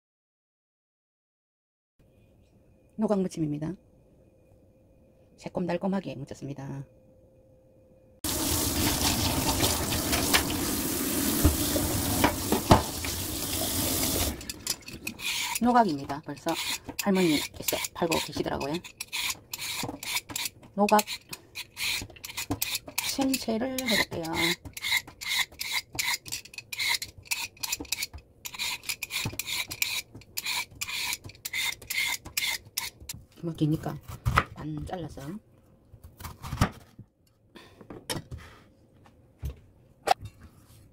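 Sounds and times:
tap water splashing into metal sink: 0:08.4 - 0:14.5
peeler scraping cucumber skin: 0:14.6 - 0:33.2.

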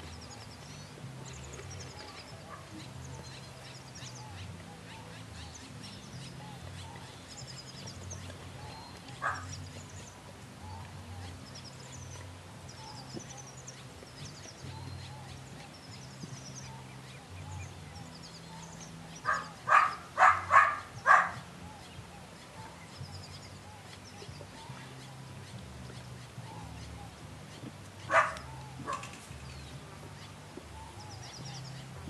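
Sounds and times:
faint birdsong: 0:00.0 - 0:32.0.

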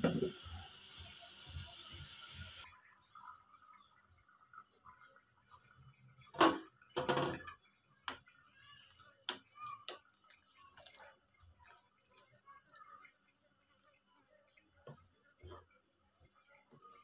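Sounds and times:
wooden spoon stirring in a pot: 0:07.4 - 0:17.0.

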